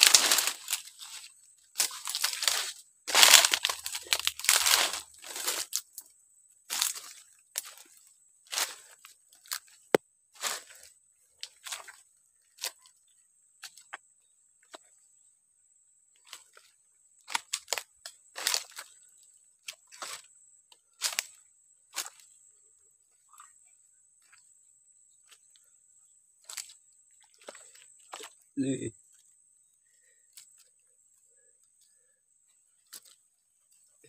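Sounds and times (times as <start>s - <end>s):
leaves crunching underfoot: 0.0s - 6.0s, 6.7s - 7.9s, 8.5s - 12.8s, 17.3s - 19.0s, 21.0s - 22.2s.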